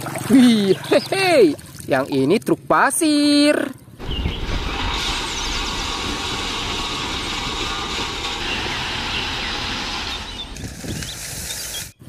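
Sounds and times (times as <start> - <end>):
heavy machinery rumble and hiss: 4.0 - 12.0
gravel loaded into truck: 4.1 - 11.9.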